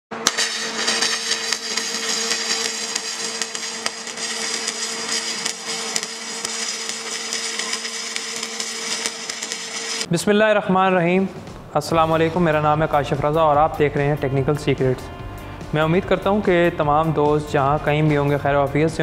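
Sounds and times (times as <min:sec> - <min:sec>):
welder hum: 0:00.1 - 0:10.1
welding arc crackling and popping: 0:00.1 - 0:10.1.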